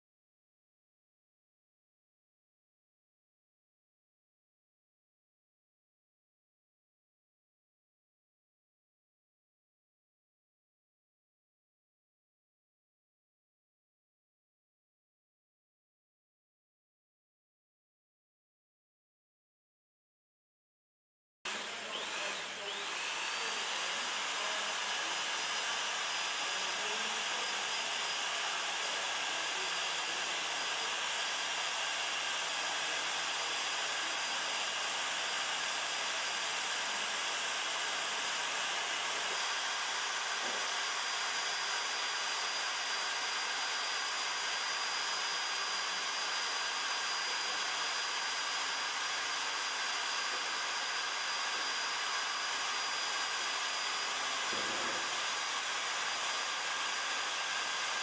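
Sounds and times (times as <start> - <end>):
hot-air blower with high whine: 21.5 - 58.0.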